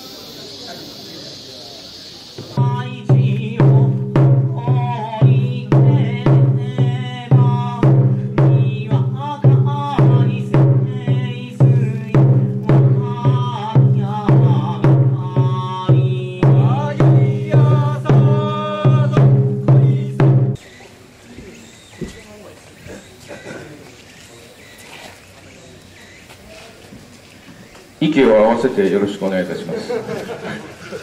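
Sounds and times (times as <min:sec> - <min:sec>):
drum steady beat: 0:00.0 - 0:20.6
chanted singing: 0:02.1 - 0:20.6.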